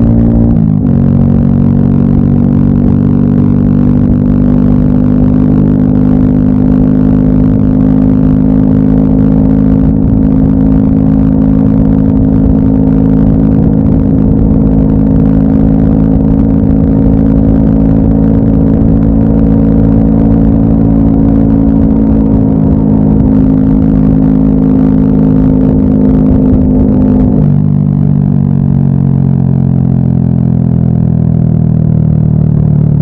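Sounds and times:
motorcycle engine running: 0:00.0 - 0:33.0
road noise: 0:00.0 - 0:33.0
rushing wind: 0:07.3 - 0:29.4.

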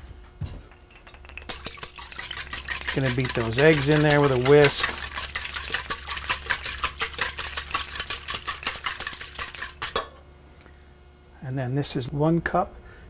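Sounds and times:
whisk beating eggs in metal bowl: 0:00.7 - 0:10.0.

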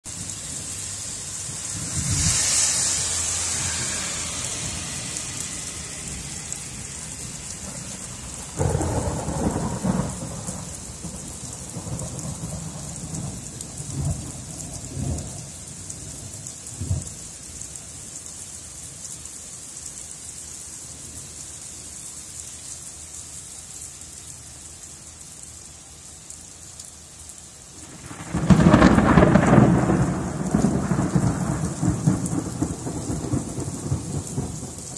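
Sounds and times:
rain on pavement: 0:00.0 - 0:34.9
thunder rumbling: 0:01.5 - 0:17.1, 0:27.8 - 0:34.9
loud thunderclap: 0:08.4 - 0:15.4, 0:27.9 - 0:34.8.

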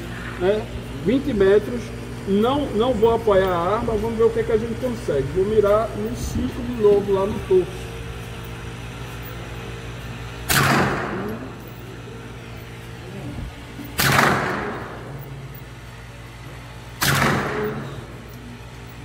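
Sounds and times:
rifle shots with echo: 0:10.5 - 0:11.4, 0:14.0 - 0:15.0, 0:17.0 - 0:18.0.

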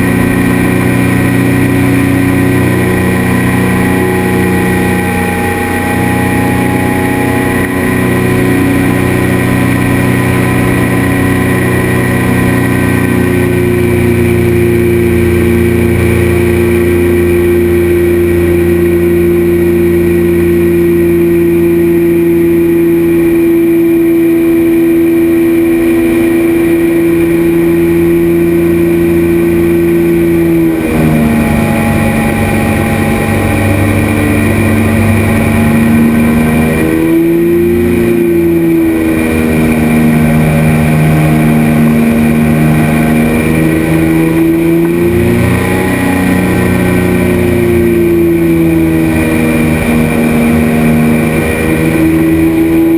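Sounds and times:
engine and pusher propeller: 0:00.0 - 0:52.9.

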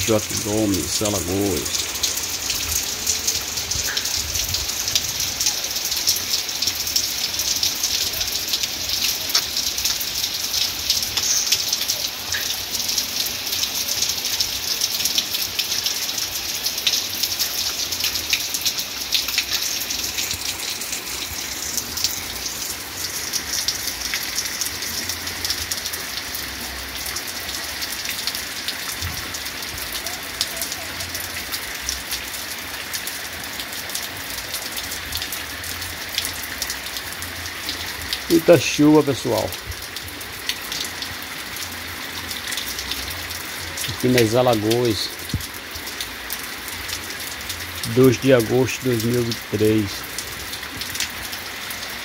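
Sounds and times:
heavy rain falling: 0:00.0 - 0:52.0.

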